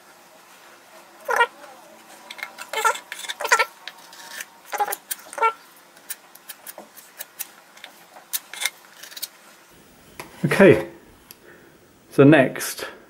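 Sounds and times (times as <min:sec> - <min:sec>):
cat meowing: 0:01.2 - 0:01.9, 0:02.7 - 0:03.7.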